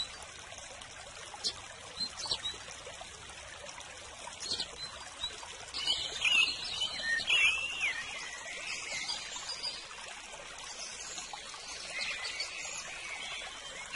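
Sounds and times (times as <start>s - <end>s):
trickle of running water: 0.0s - 13.9s
small birds chirping and singing: 1.4s - 2.6s, 4.4s - 9.9s, 10.7s - 13.9s.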